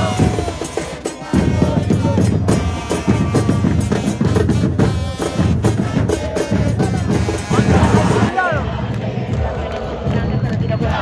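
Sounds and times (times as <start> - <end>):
trumpets playing: 0.0 - 8.5
bass drums beating: 0.0 - 11.0
crowd chanting: 0.0 - 11.0.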